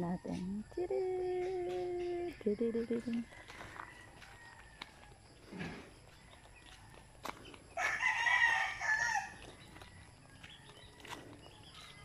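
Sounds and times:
rooster crowing: 0:03.2 - 0:05.4, 0:07.7 - 0:09.5.

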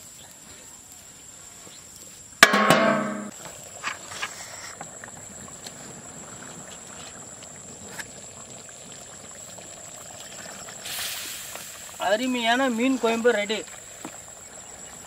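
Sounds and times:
metal ladle clink: 0:02.4 - 0:03.3
curry bubbling and simmering: 0:03.3 - 0:15.0
wood fire crackle: 0:03.3 - 0:15.0.

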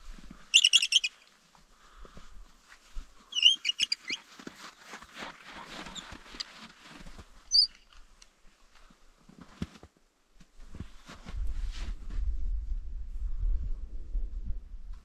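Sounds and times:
light ticks and rustles: 0:00.0 - 0:11.9
small bird chirping: 0:00.5 - 0:01.2, 0:03.3 - 0:04.2, 0:07.5 - 0:07.9.

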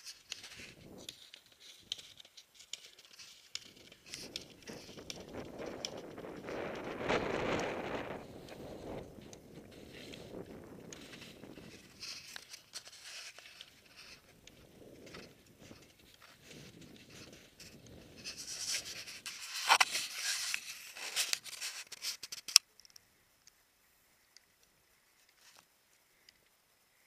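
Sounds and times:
rubbing against a camera: 0:15.0 - 0:22.6.

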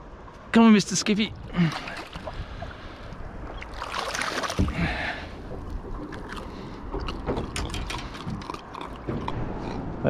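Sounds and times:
water splashing beside boat: 0:01.4 - 0:09.4.

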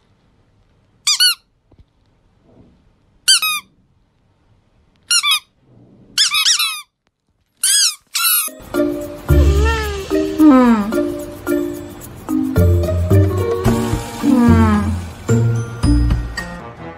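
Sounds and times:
squeaky toy squeaking: 0:01.0 - 0:01.5, 0:03.3 - 0:03.7, 0:05.1 - 0:05.6, 0:06.2 - 0:07.0, 0:07.6 - 0:08.6, 0:09.3 - 0:10.1.

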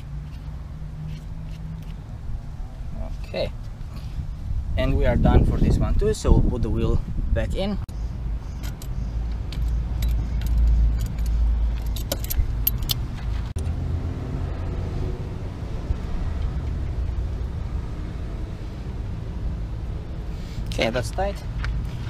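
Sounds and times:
metal tool clinking: 0:08.5 - 0:13.2
wrench clicking: 0:08.6 - 0:13.0.

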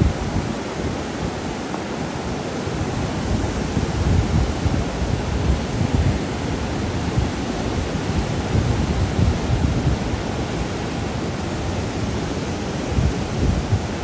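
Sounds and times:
white-water rapids rushing: 0:00.0 - 0:14.0
wind buffeting microphone: 0:00.0 - 0:14.0.

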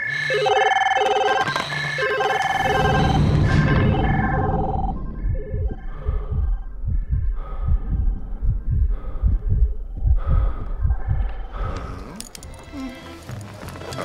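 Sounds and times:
deep heartbeat-like thumping: 0:02.4 - 0:12.0.

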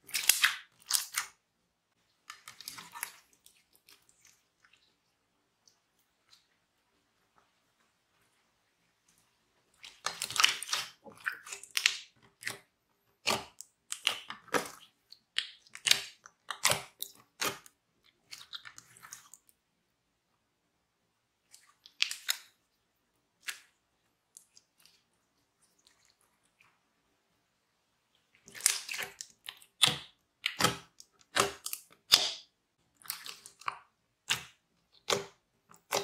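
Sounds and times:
slime crackling and squishing: 0:00.0 - 0:01.4, 0:02.0 - 0:06.6, 0:09.7 - 0:19.5, 0:28.2 - 0:36.0.

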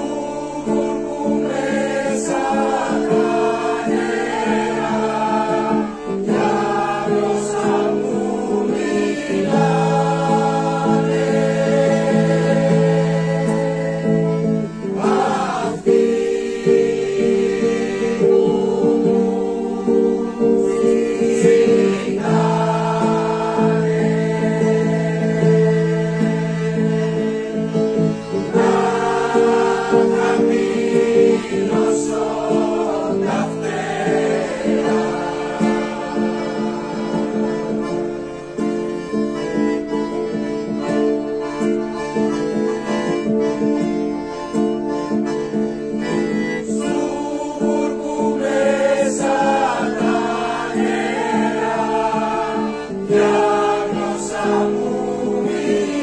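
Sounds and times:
mixed choir singing: 0:00.0 - 0:38.6, 0:44.9 - 0:56.0
acoustic guitar: 0:00.0 - 0:56.0.

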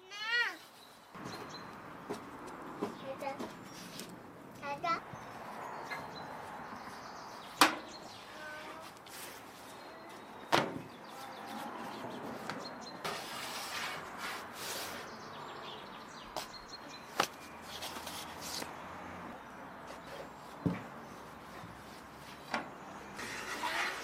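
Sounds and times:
soft rustling sweeps: 0:08.1 - 0:10.4, 0:17.2 - 0:18.9.

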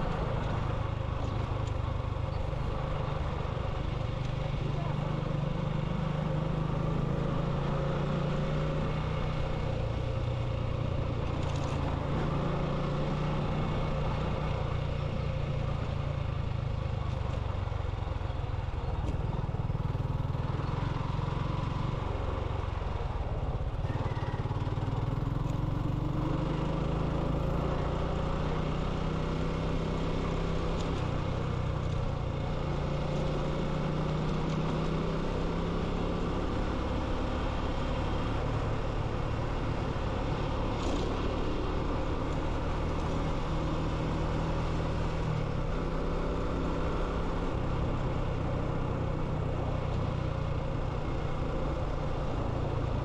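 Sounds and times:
motorcycle engine running: 0:00.0 - 0:53.0
road and wind noise: 0:00.0 - 0:53.0.

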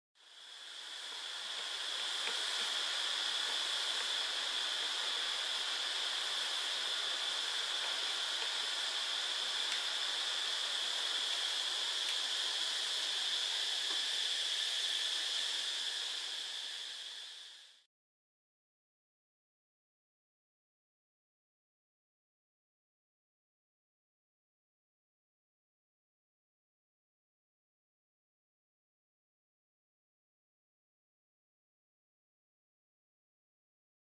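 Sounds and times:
steady hiss: 0:00.2 - 0:17.9.

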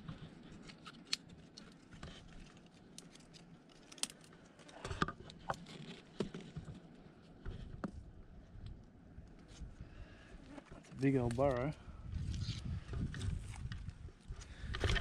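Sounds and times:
stick scraping and clicking in earth: 0:00.0 - 0:08.0, 0:10.9 - 0:14.0.

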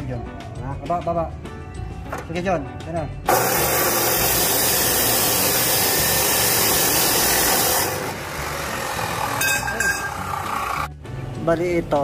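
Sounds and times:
electric power tool running: 0:03.3 - 0:10.9.

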